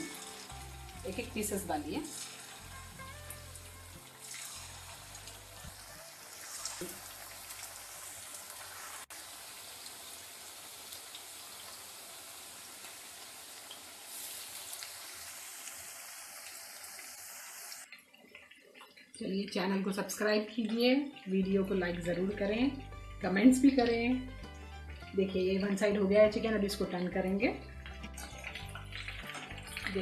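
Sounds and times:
oil sizzling deep-frying: 0:00.0 - 0:30.0.

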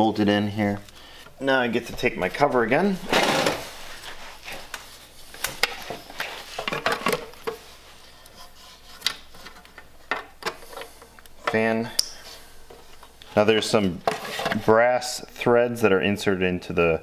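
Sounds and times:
plastic rustling rub: 0:02.4 - 0:09.8.

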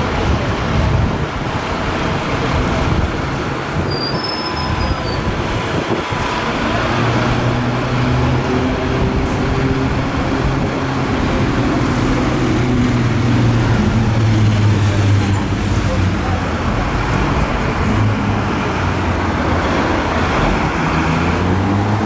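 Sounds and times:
bus passing: 0:00.0 - 0:22.0
busy street traffic: 0:00.0 - 0:22.0
high squeal: 0:03.9 - 0:05.4.

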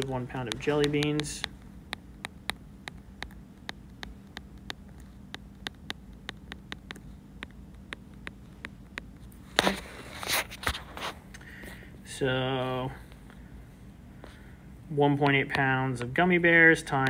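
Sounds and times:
stylus tapping on glass screen: 0:00.0 - 0:09.1
faint steady hum: 0:00.0 - 0:17.0.

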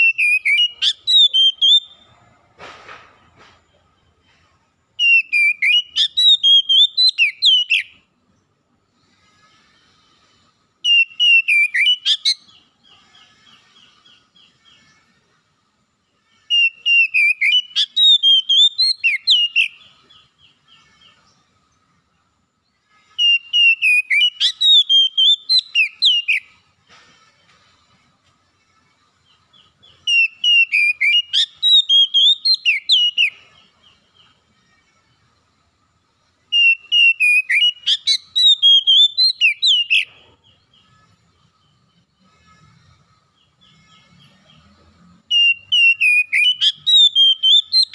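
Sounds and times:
bird singing whistled phrases: 0:00.0 - 0:02.0, 0:05.0 - 0:07.9, 0:10.8 - 0:12.6, 0:16.5 - 0:19.8, 0:23.2 - 0:26.5, 0:30.0 - 0:33.4, 0:36.5 - 0:40.1, 0:45.3 - 0:47.9.

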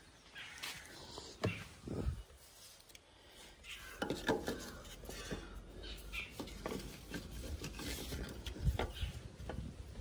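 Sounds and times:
wooden block scraping on metal: 0:06.2 - 0:09.2.

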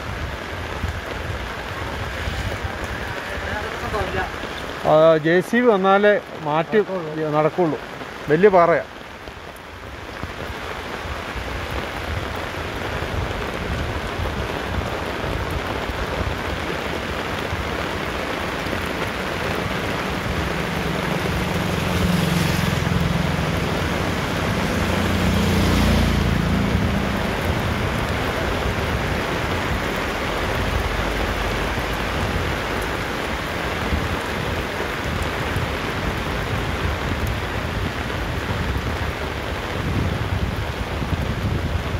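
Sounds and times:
rain on a wet road: 0:00.0 - 0:41.9
motorcycle passing: 0:19.6 - 0:30.7.

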